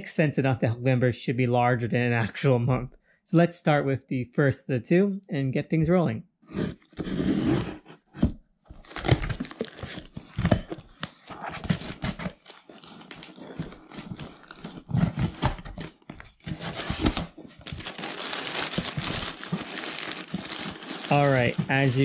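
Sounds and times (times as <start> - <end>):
cardboard box opening: 6.5 - 22.0
packaging crinkling: 8.8 - 22.0.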